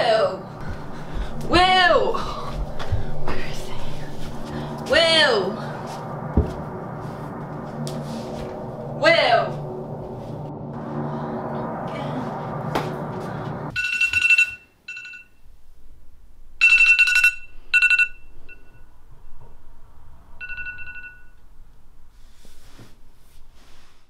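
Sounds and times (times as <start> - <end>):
smartphone alarm beeps: 16.6 - 18.8.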